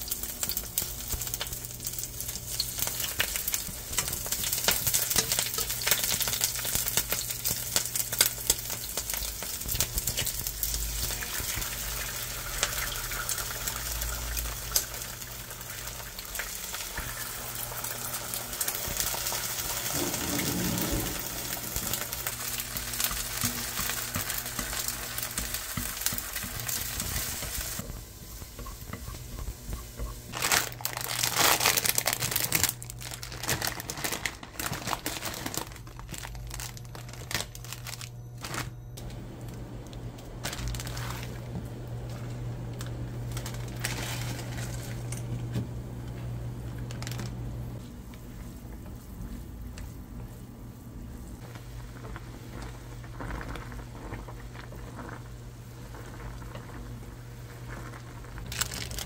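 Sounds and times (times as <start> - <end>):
eggs sizzling in frying pan: 0.0 - 37.6, 46.6 - 59.0
noodles boiling in pot: 0.0 - 59.0
plastic packet crinkling: 30.3 - 38.8, 40.4 - 45.0, 46.8 - 47.3, 57.7 - 59.0
steady low hum: 34.7 - 58.5.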